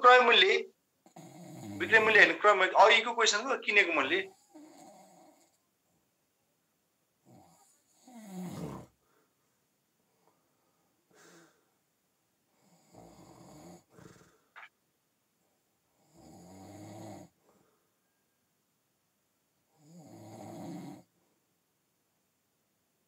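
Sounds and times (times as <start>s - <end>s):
faint snoring: 1.0s - 2.0s, 4.3s - 5.6s, 7.2s - 9.1s, 12.5s - 14.6s, 15.9s - 17.4s, 19.7s - 21.1s.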